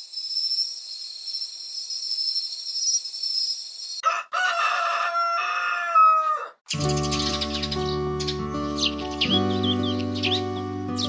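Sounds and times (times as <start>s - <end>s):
rooster crowing: 4.0s - 6.6s.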